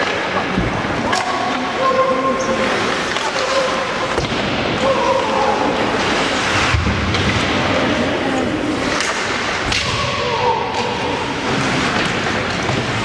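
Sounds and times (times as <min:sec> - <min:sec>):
hubbub of spectators' voices: 0:00.0 - 0:13.0.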